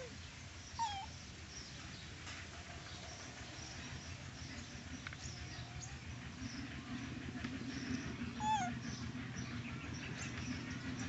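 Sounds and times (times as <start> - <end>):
monkey squeaking call: 0.8 - 1.1, 8.4 - 8.8.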